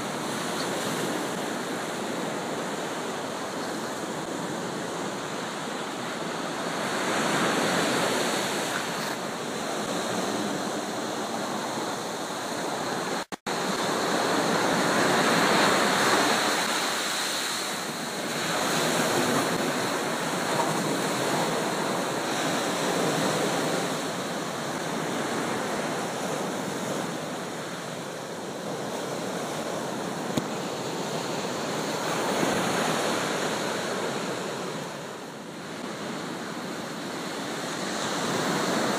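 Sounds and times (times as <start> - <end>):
waves breaking on a beach: 0.0 - 38.9.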